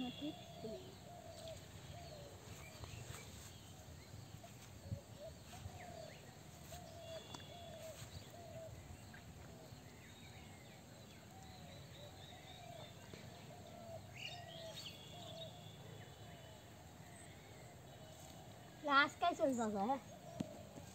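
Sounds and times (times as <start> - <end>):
low arched bird call: 0.0 - 3.0, 5.0 - 9.2
birds chirping: 0.0 - 20.9.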